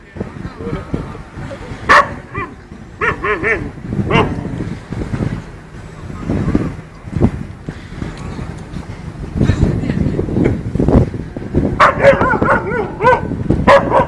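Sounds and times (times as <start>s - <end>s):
dog barking: 1.9s - 4.4s, 11.8s - 14.0s.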